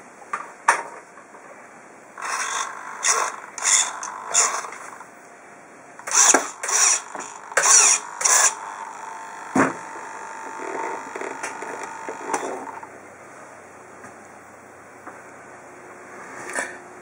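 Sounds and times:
faint whine: 0:01.4 - 0:17.0
servos whirring: 0:02.2 - 0:05.1, 0:06.0 - 0:12.9.

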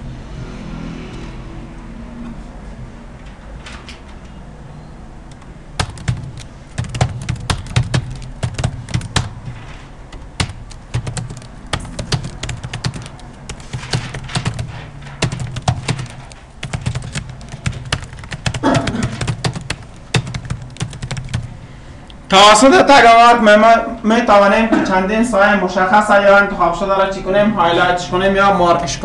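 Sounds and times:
steady low hum: 0:04.4 - 0:22.3
computer keyboard typing: 0:05.3 - 0:21.6.

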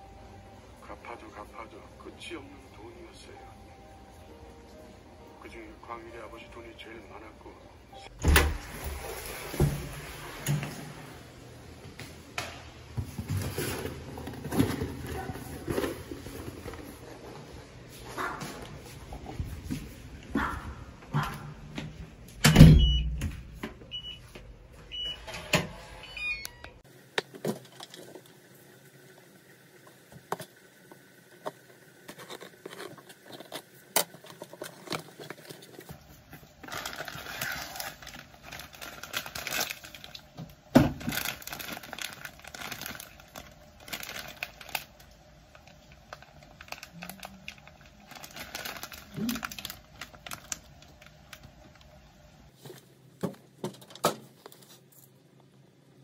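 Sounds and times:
packaging rustling: 0:13.1 - 0:17.7, 0:31.5 - 0:52.8
plastic packets crinkling: 0:32.2 - 0:52.1
cardboard tearing: 0:36.7 - 0:40.1, 0:48.1 - 0:50.6.

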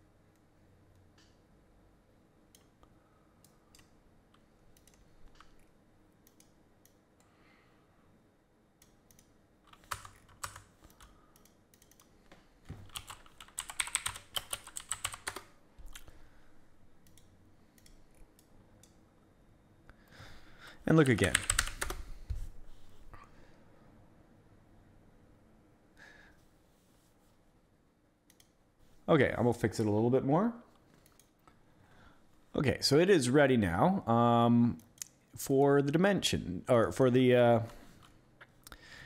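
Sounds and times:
typing on computer keyboard: 0:09.1 - 0:12.1, 0:12.8 - 0:16.1, 0:21.0 - 0:22.0.

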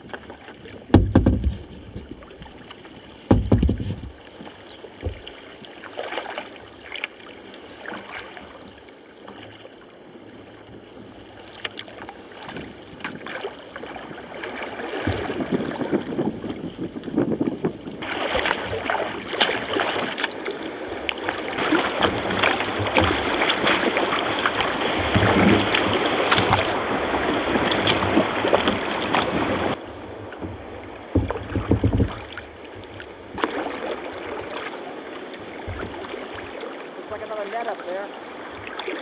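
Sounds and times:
paddle blades splashing: 0:00.0 - 0:39.0
water sloshing around hull: 0:00.0 - 0:39.0
low thumps: 0:00.9 - 0:02.1, 0:03.3 - 0:04.2, 0:30.4 - 0:32.4.

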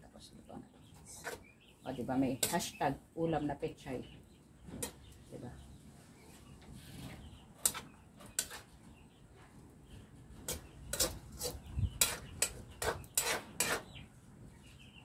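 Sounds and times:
metal spoon scraping a wok: 0:01.1 - 0:01.4, 0:07.6 - 0:08.7, 0:10.4 - 0:14.0.

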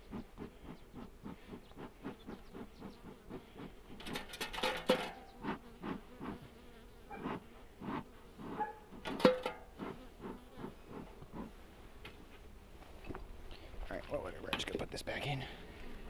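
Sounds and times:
bees buzzing: 0:00.0 - 0:04.2, 0:05.0 - 0:11.6.

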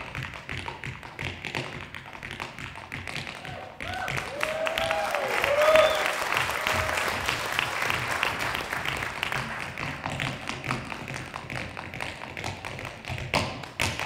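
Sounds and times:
tap shoes on wooden floor: 0:00.0 - 0:05.0, 0:08.8 - 0:14.0
audience applause: 0:03.8 - 0:10.0.

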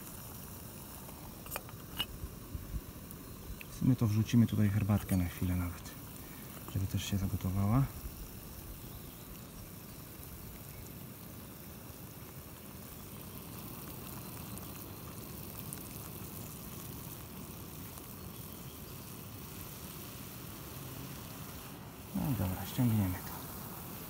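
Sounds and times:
gas stove burner hissing: 0:00.0 - 0:24.0
water boiling in metal pot: 0:00.0 - 0:24.0.

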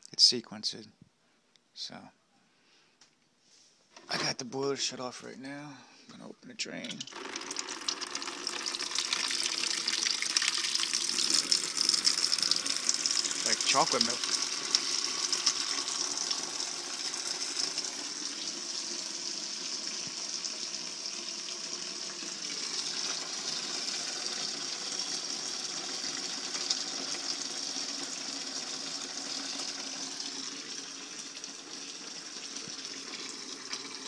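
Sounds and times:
water pouring into a tub: 0:06.9 - 0:34.0.

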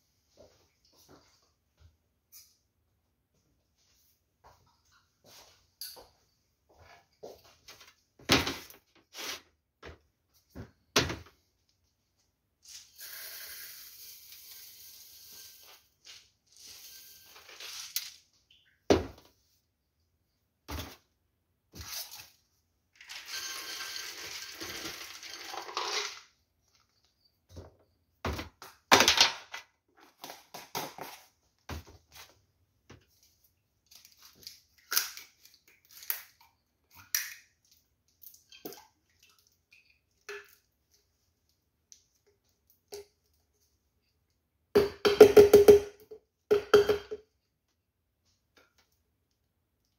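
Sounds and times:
dry ingredients poured into blender: 0:23.0 - 0:26.2
containers knocking on metal counter: 0:44.8 - 0:47.2.

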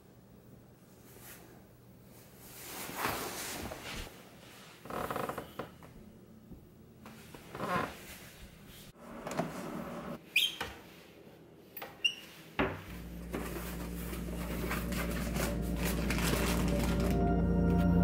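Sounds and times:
low steady drone: 0:13.0 - 0:18.0.

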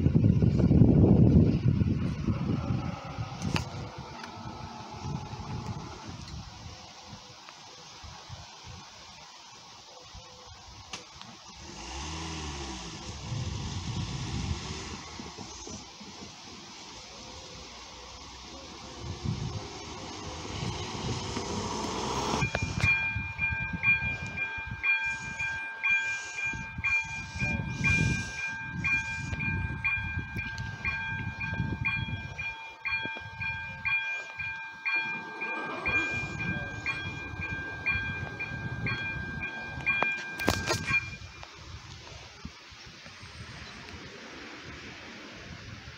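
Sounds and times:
crossing warning bell ringing: 0:18.5 - 0:41.5.

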